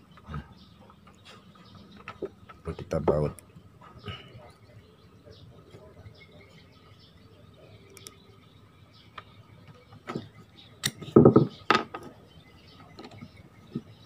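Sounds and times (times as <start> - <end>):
parts knocking and clattering: 11.0 - 12.2.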